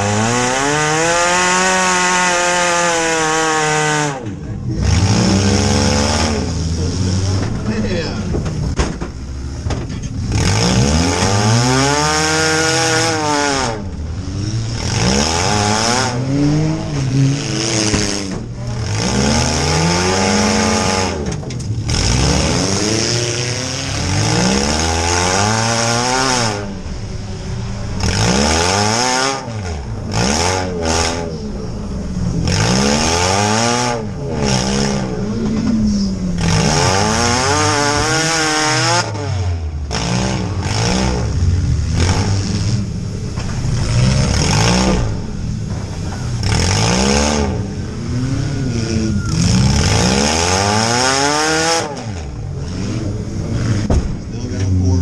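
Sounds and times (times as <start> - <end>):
car engine revving: 0.0 - 55.0.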